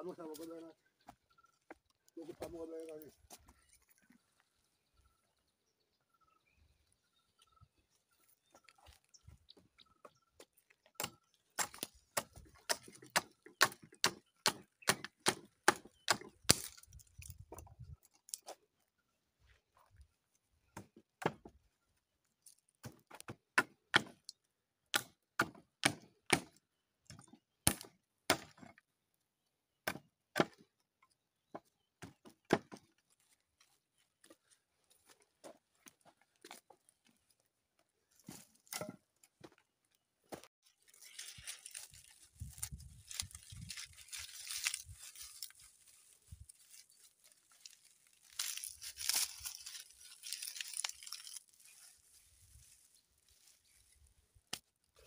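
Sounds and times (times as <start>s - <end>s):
axe chopping hollow log: 11.0s - 16.7s, 22.8s - 24.2s, 24.9s - 28.7s, 29.8s - 30.6s.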